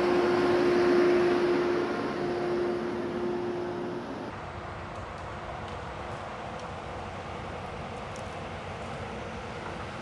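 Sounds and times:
tractor engine running: 0.0 - 4.3.

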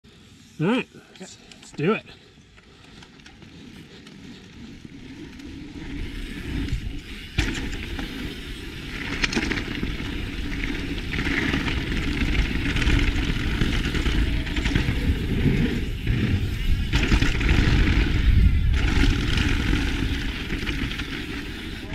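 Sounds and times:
wind on microphone: 12.2 - 21.9.

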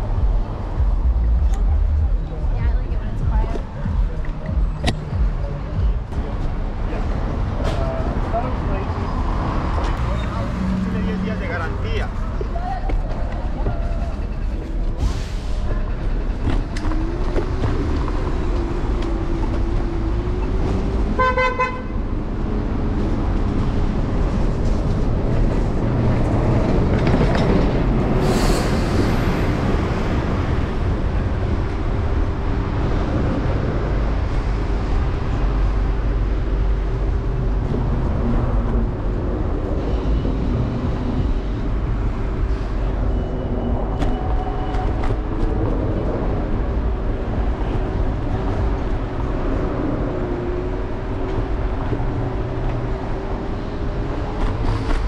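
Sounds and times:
wind and road rumble: 0.0 - 55.0
vehicle horn toot: 21.2 - 22.0.

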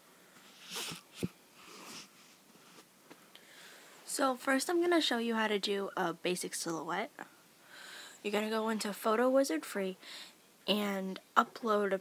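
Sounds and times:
soft breath: 0.1 - 4.1, 7.6 - 8.2, 10.0 - 10.4.

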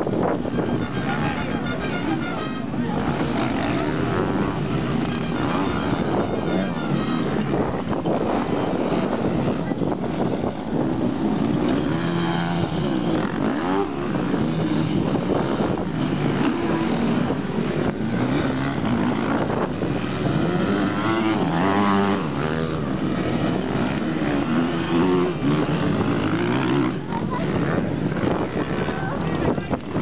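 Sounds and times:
dirt bike engines revving: 0.0 - 30.0.

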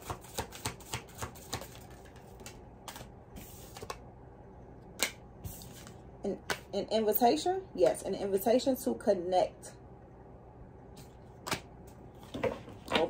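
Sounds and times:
cards being shuffled: 0.0 - 4.0.

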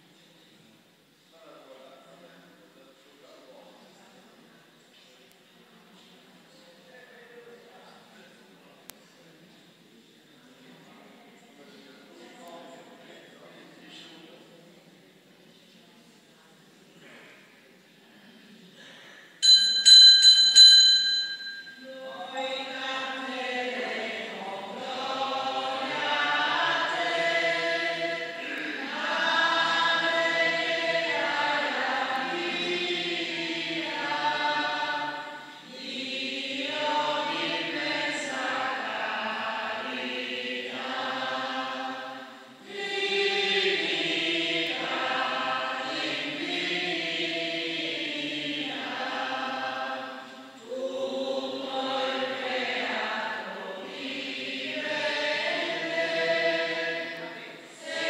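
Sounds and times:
congregation singing a hymn: 18.8 - 58.0.

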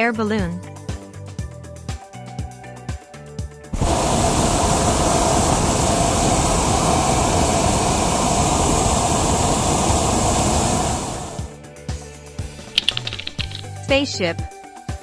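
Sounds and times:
propane burner roaring: 3.7 - 11.6.

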